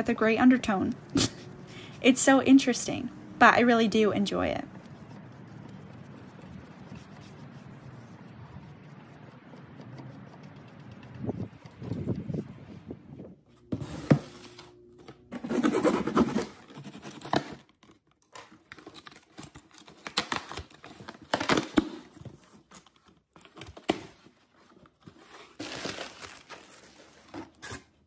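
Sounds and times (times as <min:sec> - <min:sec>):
packing tape tearing: 0:15.4 - 0:22.1, 0:25.4 - 0:28.0
plastic wrapping crinkling: 0:25.0 - 0:27.7.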